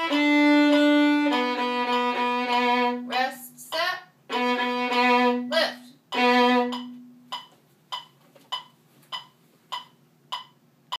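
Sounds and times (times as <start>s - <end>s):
violin long bowed note: 0.0s - 3.2s
metronome ticking: 0.0s - 11.0s.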